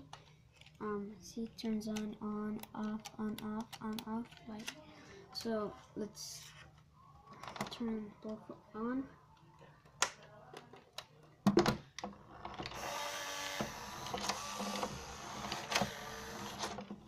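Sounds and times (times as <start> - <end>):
toy car motor whirring: 12.8 - 16.8.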